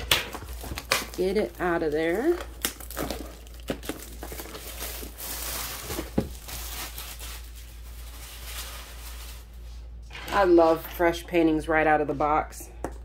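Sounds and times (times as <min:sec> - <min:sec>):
plastic shrink wrap crinkling: 0:00.0 - 0:10.0.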